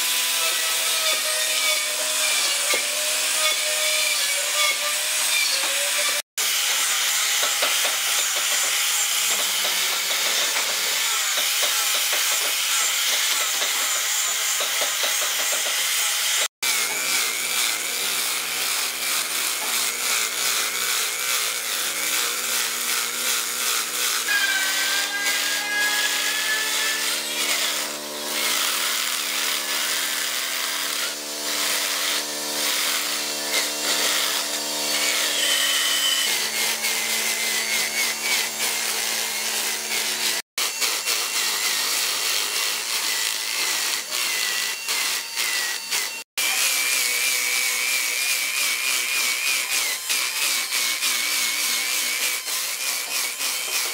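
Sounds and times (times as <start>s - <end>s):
angle grinder sanding wood: 0.0s - 53.9s
drill spinning brush on wood: 4.3s - 53.9s.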